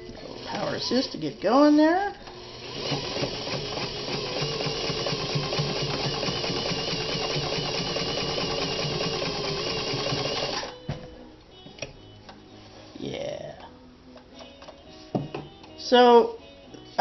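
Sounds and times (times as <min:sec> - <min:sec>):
sewing machine stitching: 0:02.3 - 0:10.7.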